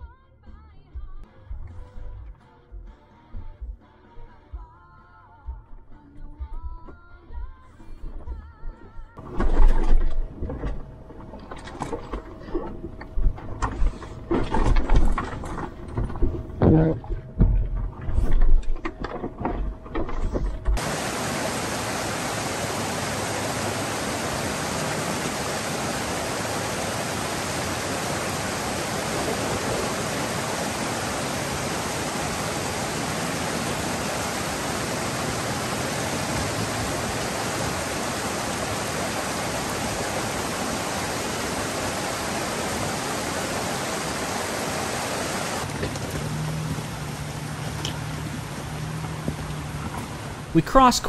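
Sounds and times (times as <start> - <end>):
creek rushing over boulders: 20.4 - 51.0.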